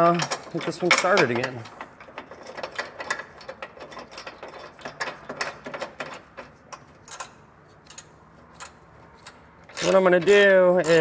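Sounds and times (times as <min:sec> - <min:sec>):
metallic clicks of bolt threading: 0:00.0 - 0:11.0.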